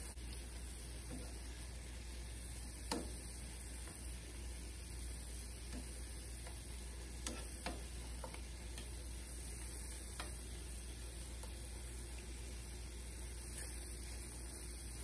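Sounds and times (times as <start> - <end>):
chicken frying hiss: 0.0 - 15.0
metal tongs clicking on frying pan: 2.8 - 3.2, 5.6 - 9.0, 9.6 - 10.5.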